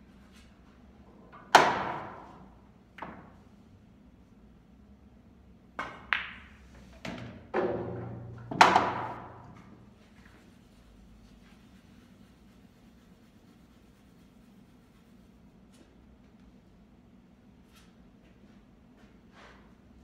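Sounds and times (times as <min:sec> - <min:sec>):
pool balls clicking: 0:05.8 - 0:09.7.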